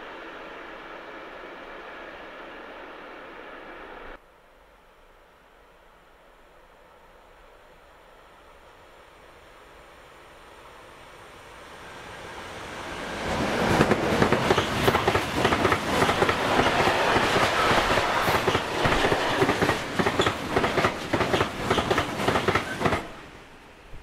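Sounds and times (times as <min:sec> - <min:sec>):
electric locomotive passing: 0:00.0 - 0:04.2, 0:04.8 - 0:24.0.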